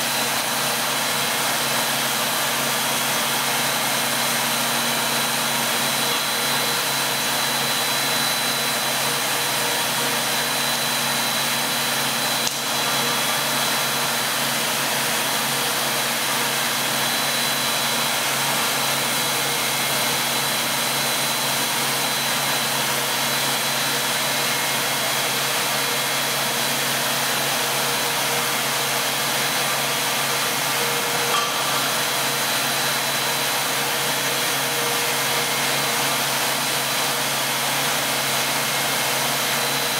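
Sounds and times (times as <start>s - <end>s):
machine hum and hiss: 0.0s - 39.9s
thin high whine: 21.9s - 37.8s.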